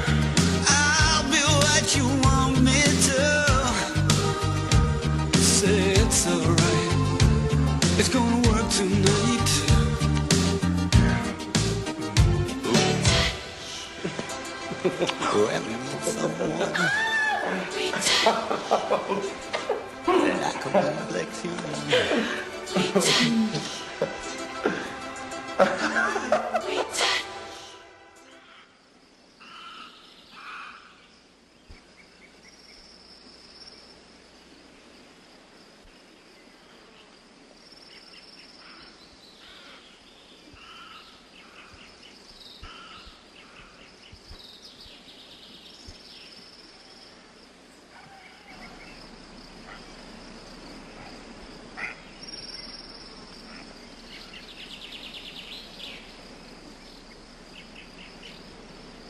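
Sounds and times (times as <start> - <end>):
crickets trilling: 0.0 - 59.0
low background noise: 0.0 - 59.0
bird chirps and calls: 51.8 - 56.2.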